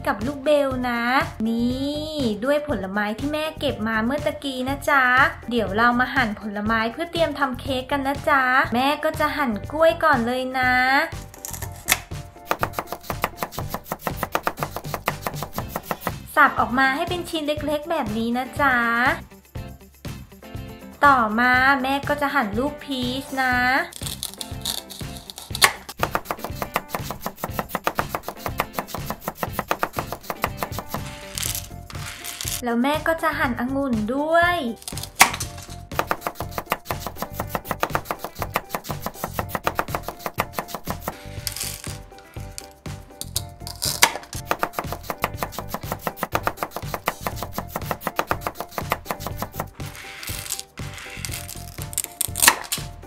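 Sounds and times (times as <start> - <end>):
background music: 0.0 - 53.0
toy knife knocking on cutting board: 11.4 - 16.1, 24.1 - 32.0, 34.9 - 41.9.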